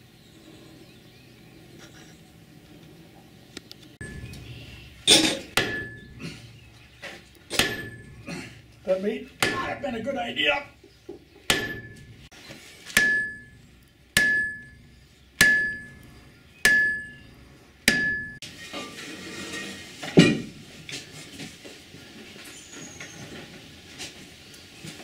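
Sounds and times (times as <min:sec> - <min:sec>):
sledgehammer striking iron: 0:04.0 - 0:06.2, 0:07.5 - 0:08.3, 0:09.4 - 0:09.8, 0:11.5 - 0:12.3, 0:12.9 - 0:18.4
heavy metal knock: 0:05.5 - 0:06.2, 0:07.5 - 0:08.2, 0:11.5 - 0:12.2.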